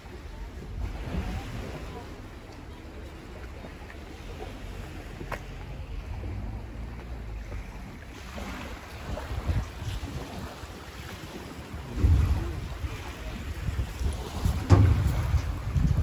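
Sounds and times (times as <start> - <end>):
waves lapping on pebbles: 0.0 - 16.0
wind buffeting microphone: 5.7 - 16.0.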